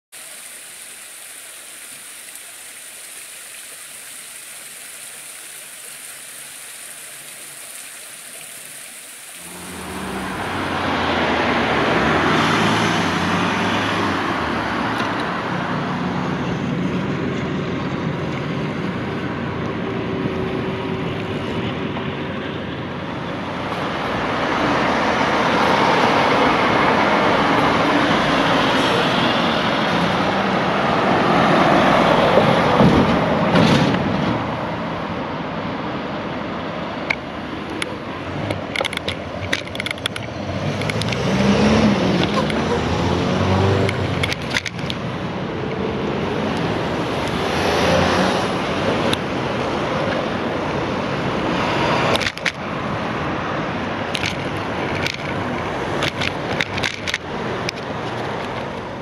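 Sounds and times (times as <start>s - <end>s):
water wheel splashing: 0.1s - 13.8s
road traffic passing: 0.1s - 59.0s
lorry passing: 9.4s - 14.4s.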